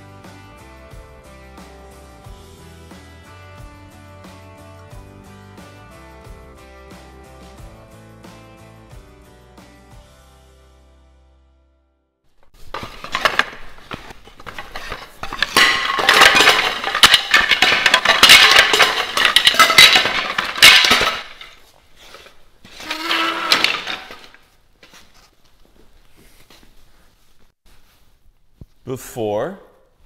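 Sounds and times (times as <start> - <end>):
wood cracking and clattering: 12.5 - 24.5.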